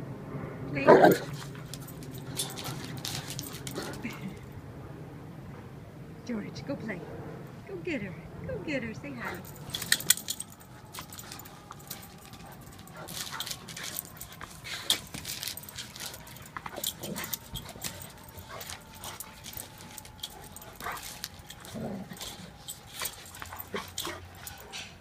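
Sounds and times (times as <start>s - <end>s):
dogs scuffling: 0.9s - 4.5s, 9.2s - 25.0s
dog vocalizations: 9.3s - 25.0s.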